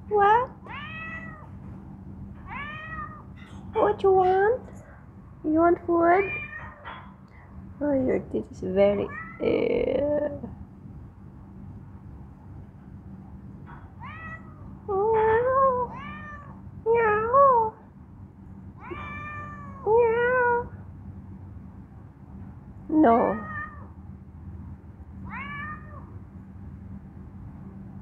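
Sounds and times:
cat meowing: 0.7s - 1.5s, 2.4s - 3.4s, 6.2s - 6.9s, 9.1s - 9.4s, 14.0s - 14.6s, 15.9s - 17.3s, 18.8s - 20.7s, 23.4s - 23.9s, 25.2s - 26.1s.

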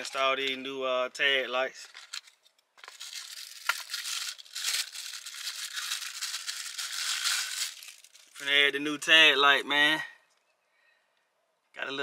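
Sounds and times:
package crinkling and rustling: 1.8s - 8.7s.

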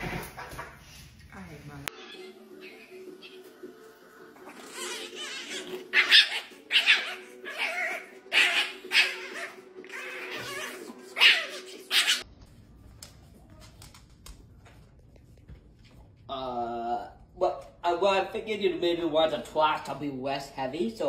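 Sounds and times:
small dog high cries: 4.7s - 12.2s.

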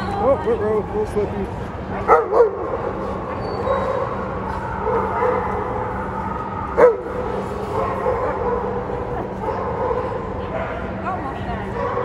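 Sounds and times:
din of a busy hall: 0.0s - 12.0s
dogs barking and yipping: 2.0s - 11.0s.

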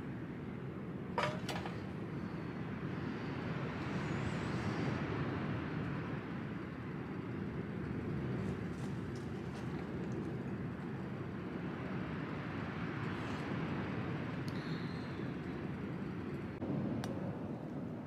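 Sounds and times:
strong wind buffeting tent: 0.0s - 18.0s
kettle clinking on metal heater: 1.2s - 1.9s.

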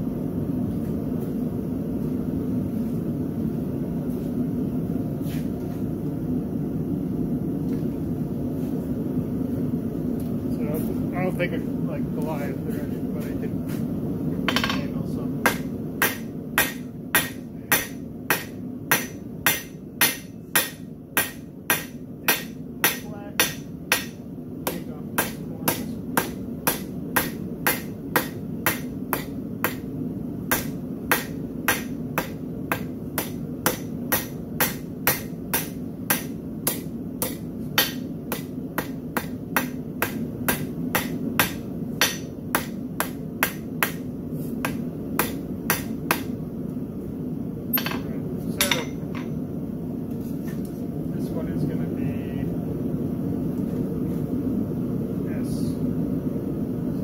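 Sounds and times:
hammer striking metal on anvil: 14.5s - 29.9s, 30.5s - 44.0s, 44.6s - 46.4s, 47.7s - 49.3s.

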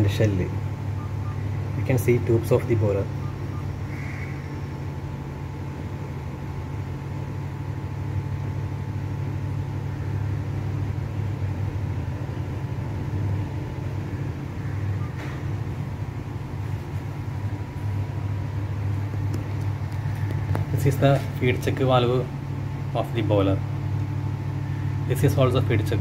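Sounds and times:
high-pitched whine: 0.0s - 5.2s
low machine hum: 0.0s - 26.0s.

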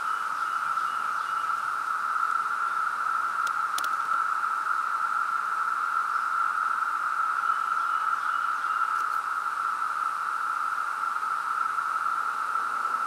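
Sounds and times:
cicadas high-pitched drone: 0.0s - 13.0s
faint clicks: 3.4s - 4.2s.

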